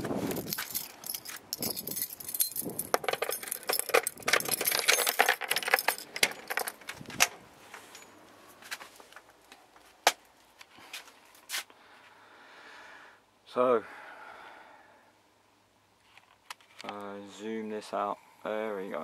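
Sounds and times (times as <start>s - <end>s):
keys jangling: 0.3s - 7.3s.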